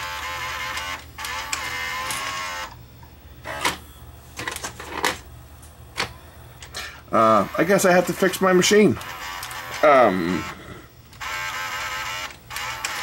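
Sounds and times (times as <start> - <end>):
tape loader mechanism whirring: 0.0 - 2.8, 3.4 - 5.2, 7.2 - 13.0
sharp mechanical clicks: 8.1 - 9.9, 11.1 - 13.0.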